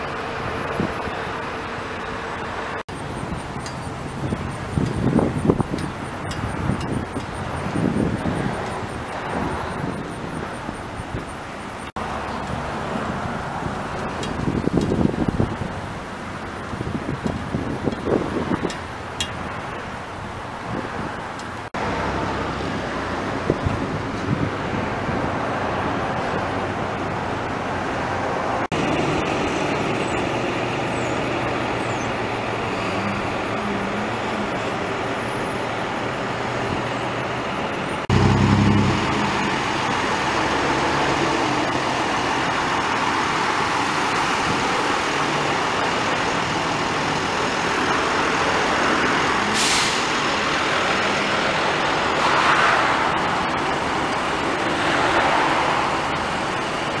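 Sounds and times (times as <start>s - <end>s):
vehicles passing: 0.0s - 57.0s
short hiss: 49.5s - 50.2s.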